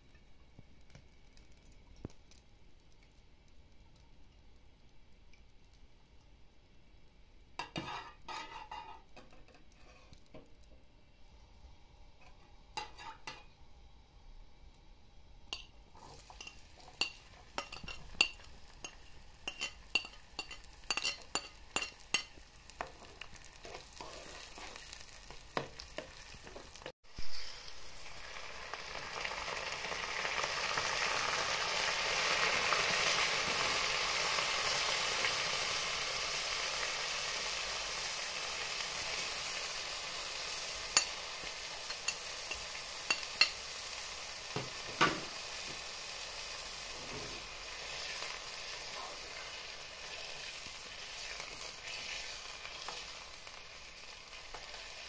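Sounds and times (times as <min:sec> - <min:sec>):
food sizzling in hot oil: 0:00.0 - 0:55.0
utensil clinking and scraping in pan: 0:07.6 - 0:10.4, 0:12.2 - 0:13.5, 0:15.5 - 0:26.9, 0:40.9 - 0:43.8.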